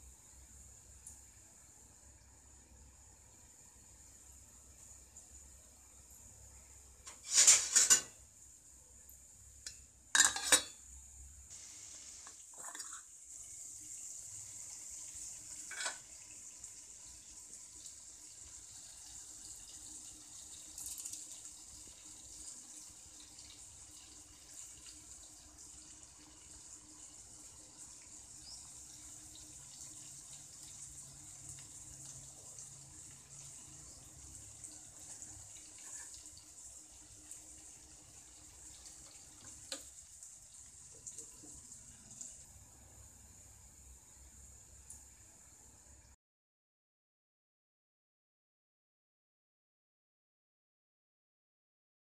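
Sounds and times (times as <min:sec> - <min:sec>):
soup boiling in steel pot: 0:00.0 - 0:46.2.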